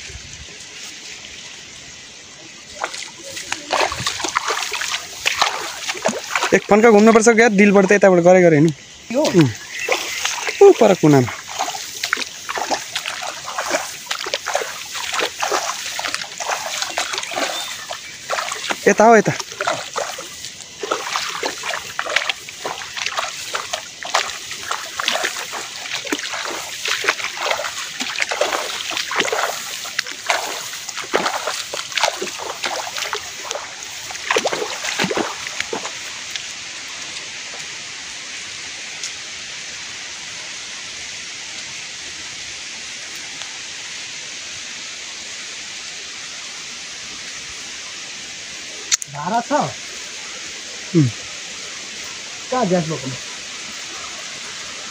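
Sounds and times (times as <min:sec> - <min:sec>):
steady hiss: 0:00.0 - 0:54.9
footsteps splashing through water: 0:02.6 - 0:37.9
plants swishing against legs: 0:09.1 - 0:36.0.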